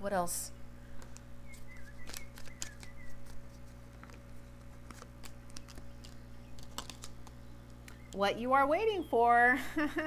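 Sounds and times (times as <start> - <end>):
low electrical hum: 0.0 - 10.0
cards shuffling and snapping: 1.0 - 8.0.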